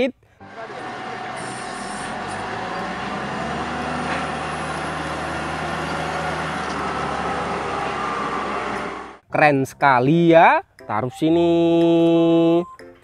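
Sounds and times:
diesel engine running: 0.4 - 9.2.

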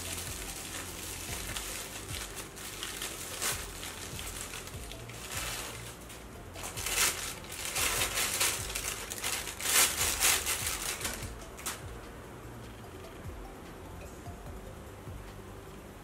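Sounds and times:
bubble wrap and plastic crinkling: 0.0 - 12.0.

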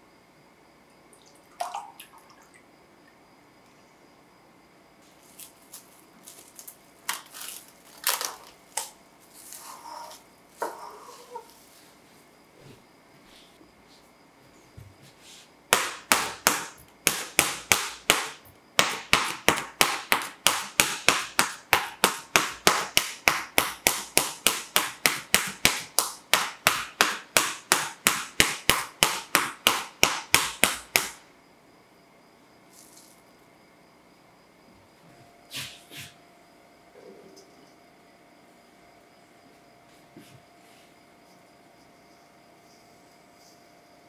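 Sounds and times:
skewer popping plastic wrap: 5.2 - 9.6.

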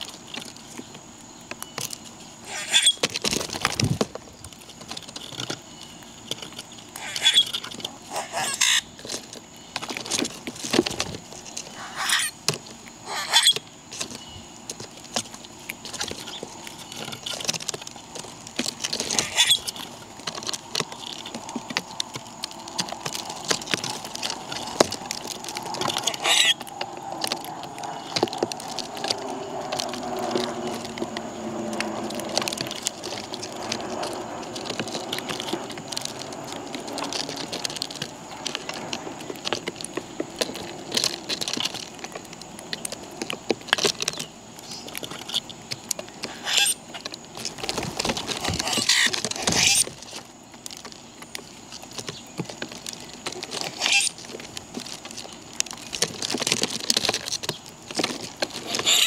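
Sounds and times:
birds pecking seed: 0.0 - 59.0
high bird chirps: 1.6 - 3.0, 6.9 - 9.8, 11.7 - 12.4, 13.0 - 14.5, 19.2 - 19.8, 26.0 - 28.3.

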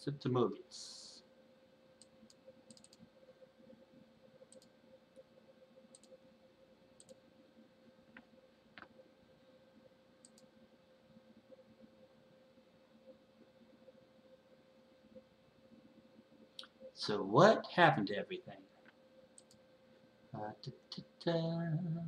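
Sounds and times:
faint steady hum: 0.0 - 22.0
computer mouse clicks: 2.0 - 3.1, 4.4 - 5.3, 5.9 - 6.2, 7.0 - 7.2, 10.2 - 10.5, 18.8 - 19.6.

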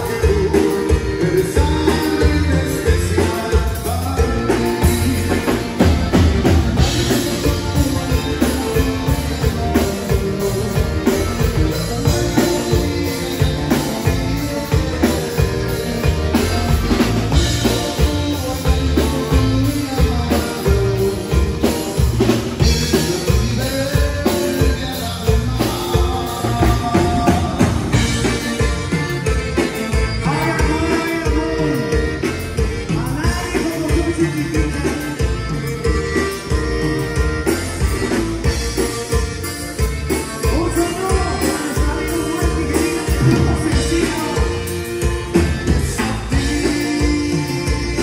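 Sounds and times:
bass: 0.0 - 48.0
button accordion: 0.0 - 48.0
drum kit beat: 0.0 - 48.0
guitar: 0.0 - 48.0.

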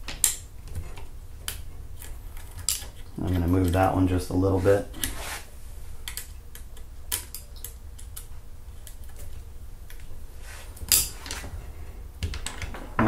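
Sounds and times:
loud metal clack: 12.6 - 13.0.

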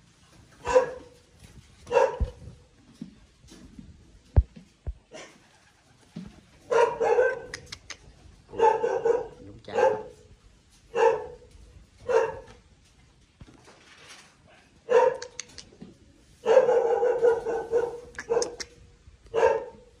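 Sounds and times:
dog barking: 0.6 - 1.2, 1.9 - 2.4, 6.7 - 7.6, 8.5 - 10.3, 10.9 - 12.5, 14.5 - 15.4, 16.4 - 18.7, 19.3 - 20.0.

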